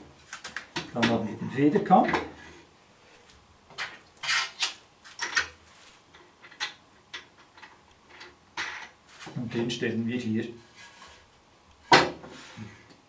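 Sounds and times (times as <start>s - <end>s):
wood scraping: 10.5s - 11.4s.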